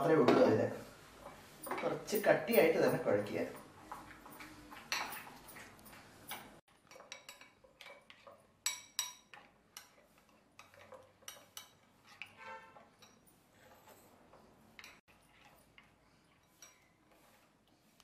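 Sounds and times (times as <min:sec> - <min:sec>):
spoon scraping batter in bowl: 0:03.8 - 0:18.0.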